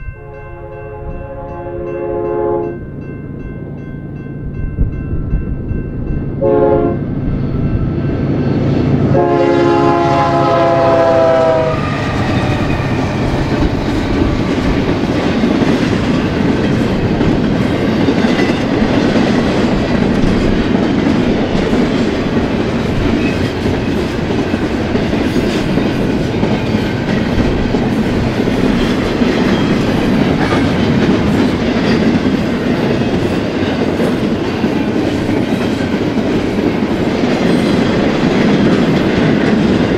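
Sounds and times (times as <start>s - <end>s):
train cars rumbling past: 0.0s - 39.9s
locomotive horn blasts: 0.2s - 2.8s, 6.4s - 7.0s, 9.1s - 12.0s.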